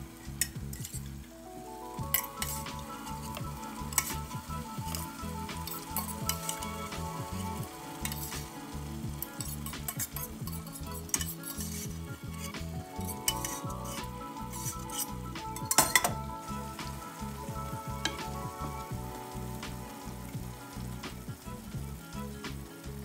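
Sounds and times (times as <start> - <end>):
sauce sizzling in a pan: 0.0 - 23.0
wooden spoon stirring: 2.0 - 19.6
fork scraping metal pot: 2.1 - 6.9, 7.9 - 8.5, 9.2 - 16.2.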